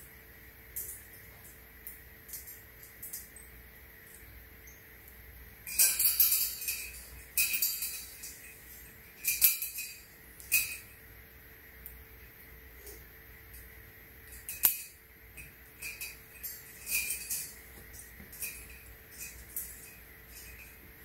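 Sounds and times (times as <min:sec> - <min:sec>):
wire panels clinking and rattling: 0:05.7 - 0:11.0, 0:14.2 - 0:21.0.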